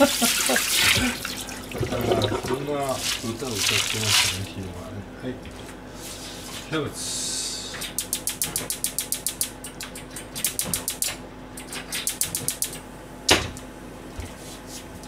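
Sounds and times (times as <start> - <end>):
rapid sharp ticks: 7.8 - 12.8.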